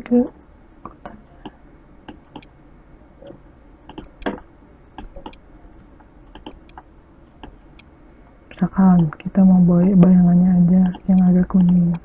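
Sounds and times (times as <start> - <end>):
computer mouse clicking: 3.9 - 4.4, 6.3 - 6.8, 10.8 - 12.0.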